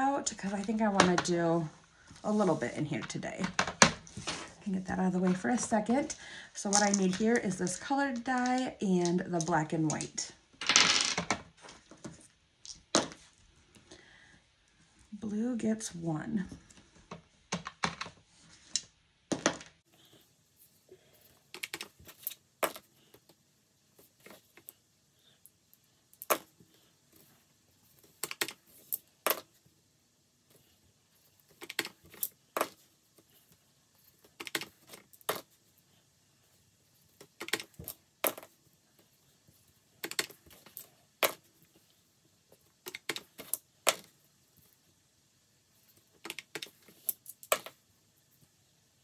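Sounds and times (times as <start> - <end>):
dice clattering on table: 6.6 - 11.5, 21.6 - 22.9, 26.2 - 26.5, 28.2 - 29.5, 37.3 - 38.5, 40.0 - 41.5, 46.2 - 47.8.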